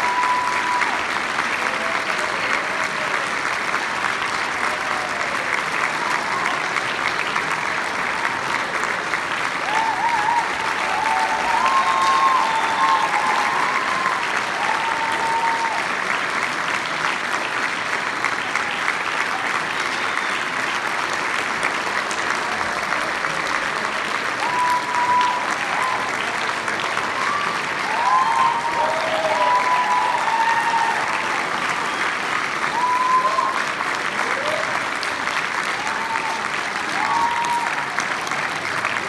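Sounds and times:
whooping cheers: 0:00.0 - 0:02.1, 0:09.5 - 0:16.2, 0:24.1 - 0:39.0
audience applauding: 0:00.0 - 0:39.0.

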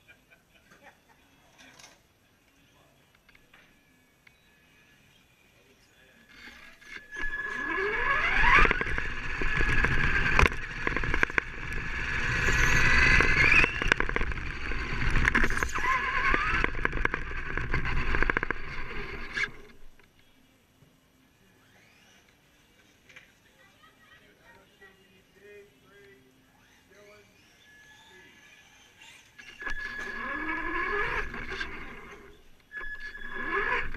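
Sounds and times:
rc car motor and gear whine: 0:06.2 - 0:20.3, 0:21.4 - 0:23.3, 0:25.8 - 0:33.9
rumble: 0:07.5 - 0:20.0.

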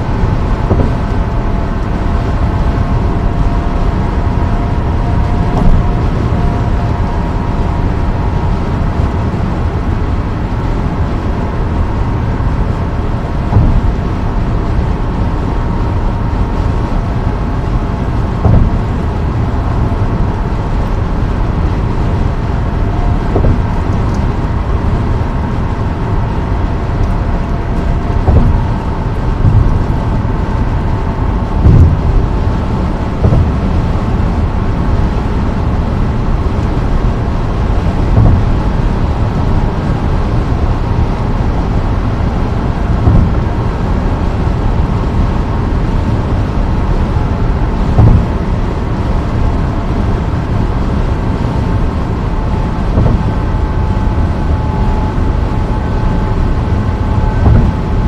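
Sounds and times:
tyre and road rumble: 0:00.0 - 0:58.0
low thump: 0:00.4 - 0:01.8, 0:05.2 - 0:06.6, 0:13.5 - 0:14.8, 0:18.4 - 0:21.0, 0:22.8 - 0:25.1, 0:26.7 - 0:35.2, 0:37.7 - 0:41.2, 0:42.3 - 0:43.8, 0:47.1 - 0:49.6, 0:51.8 - 0:58.0.

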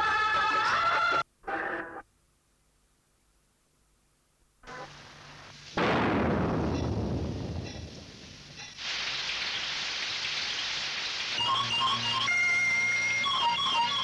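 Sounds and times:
rain hiss: 0:04.6 - 0:13.3
thunder clap: 0:05.7 - 0:09.0.

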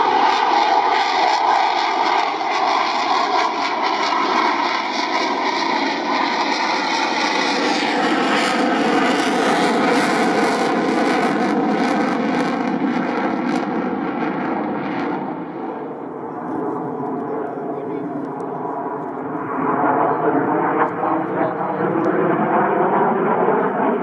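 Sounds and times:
fighter jet engine roar: 0:00.0 - 0:24.0.

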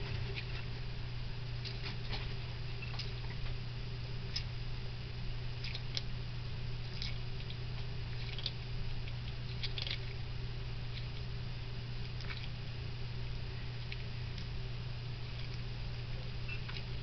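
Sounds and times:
steady low hum: 0:00.0 - 0:17.0
lizard chewing wet smacks: 0:05.6 - 0:06.1, 0:06.8 - 0:11.4, 0:12.0 - 0:12.7, 0:15.2 - 0:15.7.

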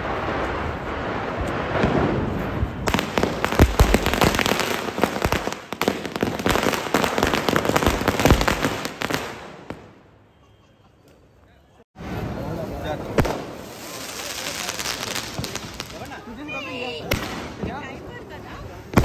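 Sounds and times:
firecrackers cracking and popping: 0:00.0 - 0:10.0, 0:13.0 - 0:16.4, 0:17.0 - 0:18.0.

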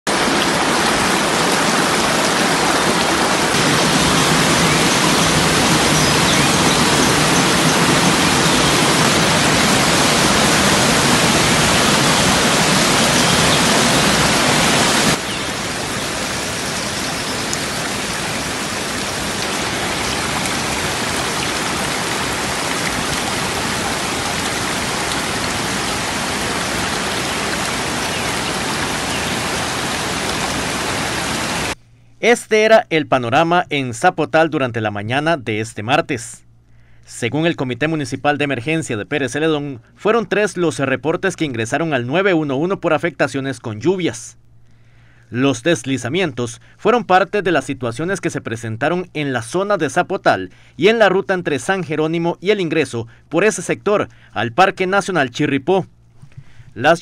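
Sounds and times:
running water rushing: 0:00.0 - 0:31.8.

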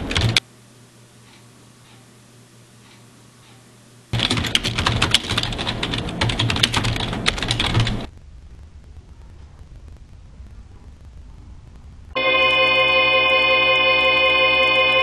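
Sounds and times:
fast keyboard typing: 0:00.0 - 0:00.4, 0:04.1 - 0:08.1
faint room hum: 0:00.0 - 0:15.0.

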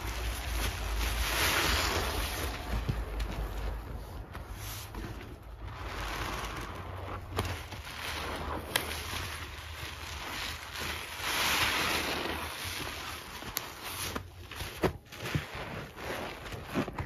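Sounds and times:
sponge squelching in lather: 0:00.0 - 0:17.0.

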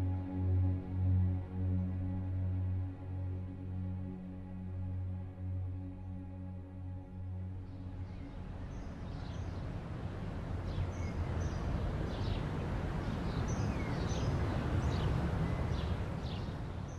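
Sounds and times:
soft ambient music: 0:00.0 - 0:16.9
outdoor noise: 0:05.7 - 0:16.9
small birds chirping: 0:10.7 - 0:16.9.

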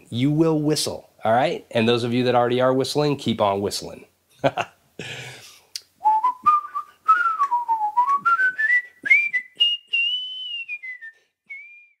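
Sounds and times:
man whistling: 0:06.0 - 0:12.0.

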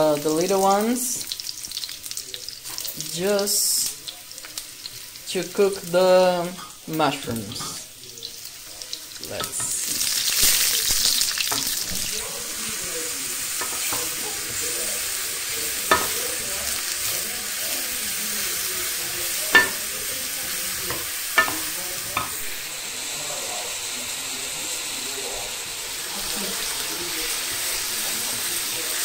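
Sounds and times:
vegetables sizzling in frying pan: 0:00.0 - 0:29.0
wooden spoon knocking against pan: 0:19.6 - 0:19.9.

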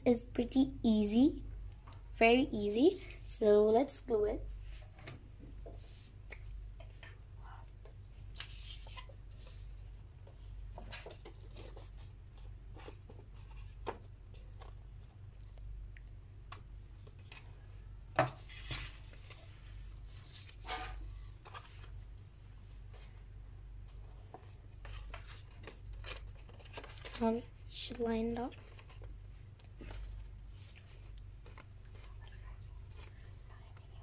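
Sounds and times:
low steady hum: 0:00.0 - 0:34.0
paper rustles and scrapes: 0:08.3 - 0:14.8, 0:18.3 - 0:22.0, 0:23.9 - 0:29.1, 0:29.8 - 0:33.3.

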